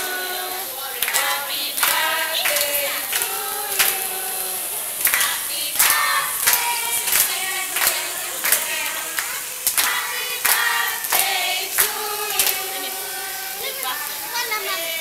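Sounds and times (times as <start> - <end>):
group singing together: 0.0 - 15.0
hand clapping: 1.0 - 4.2, 5.0 - 12.9.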